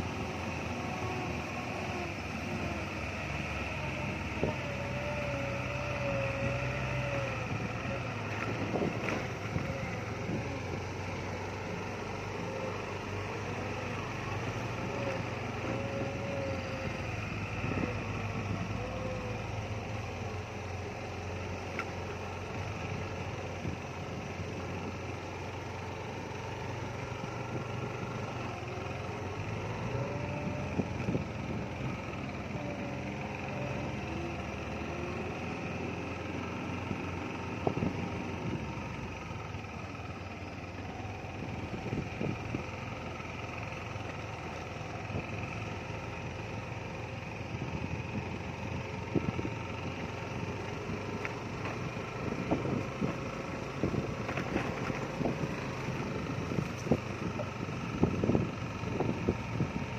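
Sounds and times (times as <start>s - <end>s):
vehicle engine running: 0.0s - 59.9s
vehicle knocks and rattles: 53.9s - 55.6s.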